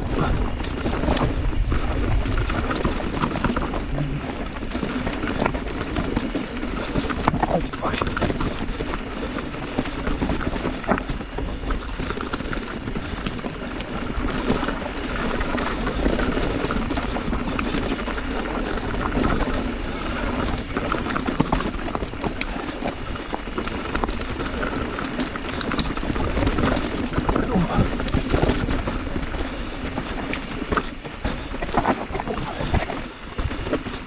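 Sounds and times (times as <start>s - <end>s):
bike knocking and rattling: 0.0s - 34.0s
bike tyres crunching over gravel: 0.0s - 34.0s
wind rushing on microphone: 0.0s - 34.0s.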